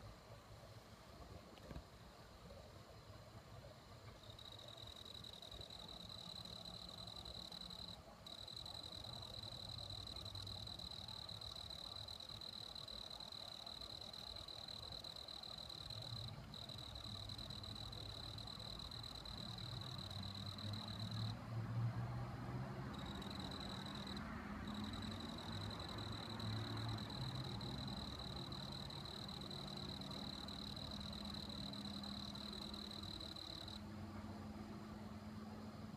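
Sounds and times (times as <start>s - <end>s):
cricket trilling: 4.2s - 21.4s, 22.8s - 33.8s.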